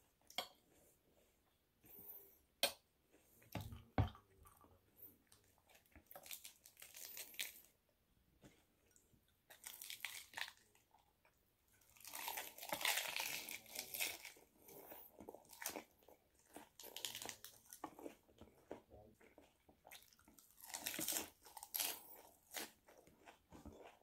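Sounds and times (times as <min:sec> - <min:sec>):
crunching and chewing lettuce: 0:05.4 - 0:07.8, 0:09.5 - 0:10.9, 0:11.8 - 0:24.0.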